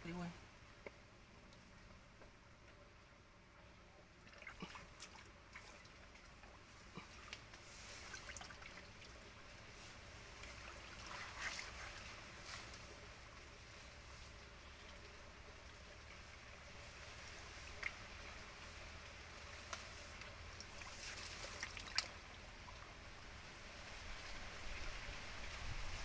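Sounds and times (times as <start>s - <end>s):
shallow water splashing and trickling: 4.0s - 23.3s.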